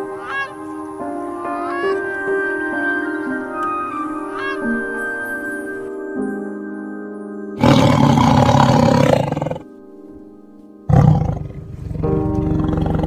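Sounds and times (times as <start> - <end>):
background music: 0.0 - 13.0
tiger roaring: 7.6 - 9.7, 10.9 - 13.0.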